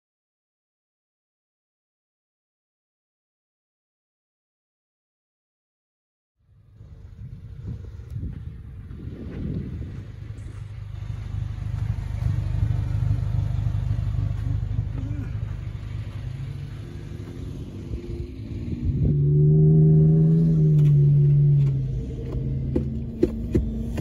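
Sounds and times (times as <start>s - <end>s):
engine revving: 6.4s - 24.0s.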